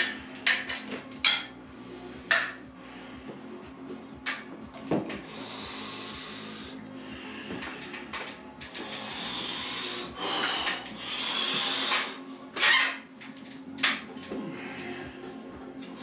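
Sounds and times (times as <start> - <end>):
faint music: 0.0 - 16.0
forceful breathing: 5.1 - 12.3, 14.3 - 15.5.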